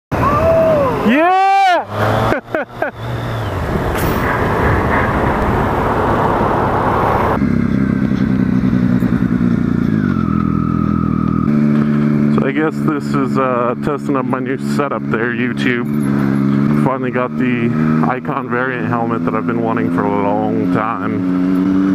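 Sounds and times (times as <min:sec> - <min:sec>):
motorcycle engine running: 0:02.3 - 0:21.9
wind noise: 0:02.5 - 0:07.4.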